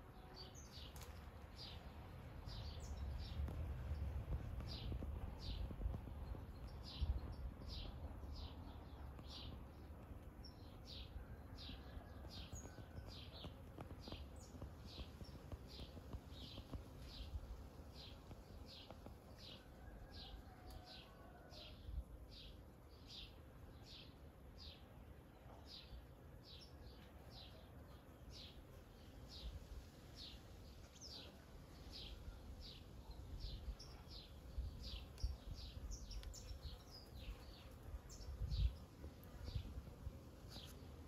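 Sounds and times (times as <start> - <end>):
faint outdoor background noise: 0.0 - 41.0.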